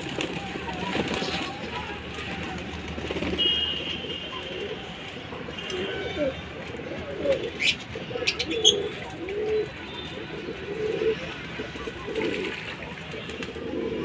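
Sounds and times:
pigeons cooing: 5.9 - 11.4, 13.5 - 14.0.

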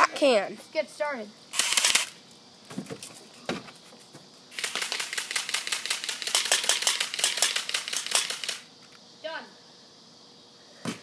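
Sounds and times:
rapid sharp clicks: 1.6 - 2.2, 4.5 - 8.7.

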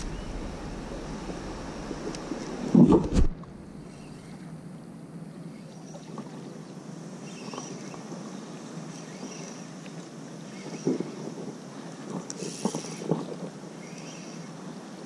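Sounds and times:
wind noise on microphone: 0.0 - 4.6, 10.6 - 13.8
water lapping against kayak: 0.0 - 15.0.

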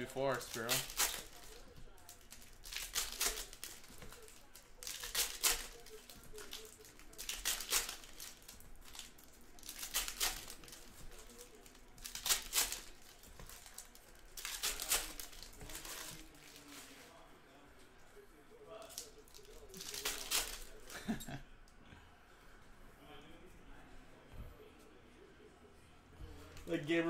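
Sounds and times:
foil wrappers crinkling and tearing: 0.0 - 17.1, 18.7 - 21.1.

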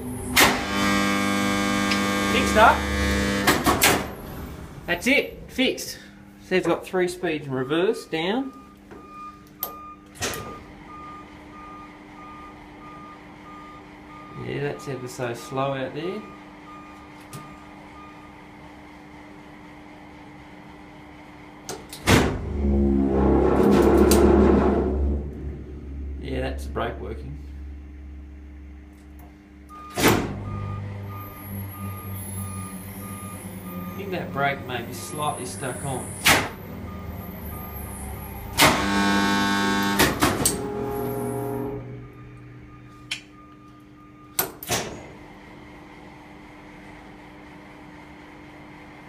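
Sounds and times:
electric motor hum: 0.0 - 3.6
loud electric hum: 0.0 - 8.8, 18.6 - 49.0
low steady hum: 22.0 - 44.4.

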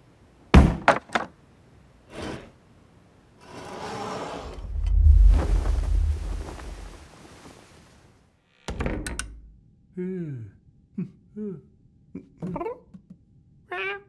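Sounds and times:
rattling into deep rumble: 4.4 - 7.1.

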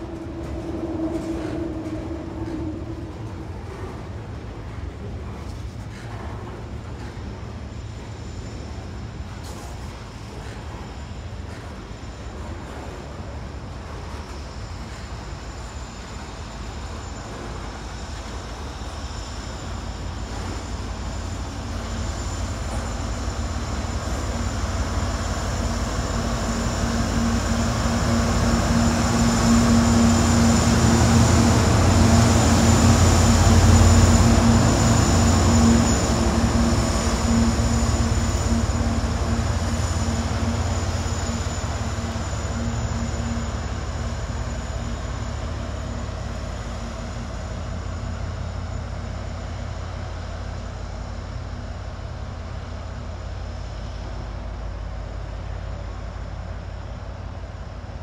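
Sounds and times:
freight locomotive engine drone: 0.0 - 58.0.

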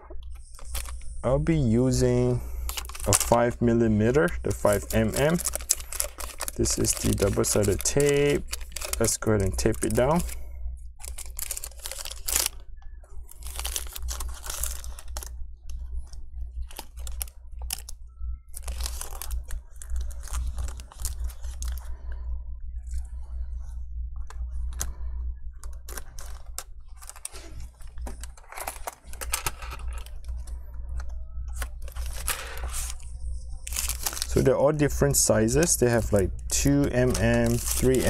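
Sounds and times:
low steady hum: 0.0 - 38.0
tape peeling and crinkling: 35.5 - 38.0.

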